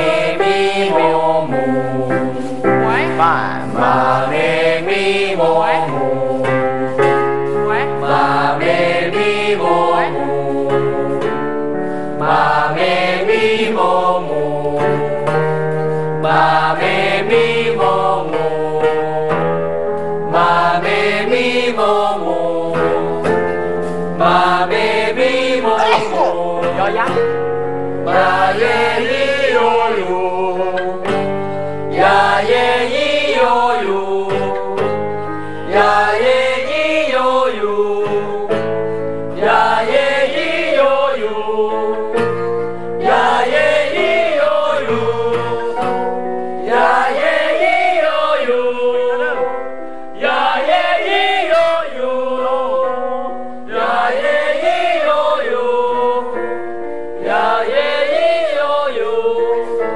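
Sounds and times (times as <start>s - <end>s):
acoustic guitar: 0.0s - 50.8s
group singing vocal scales: 0.0s - 59.9s.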